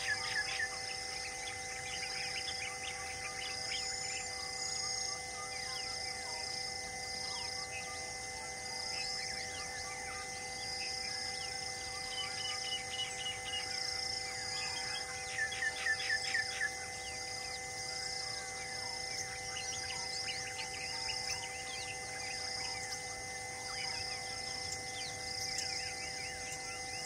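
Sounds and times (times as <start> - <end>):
birds chirping: 0.0 - 6.0, 9.0 - 27.0
descending bird notes: 0.0 - 6.0
insects droning: 0.0 - 27.0.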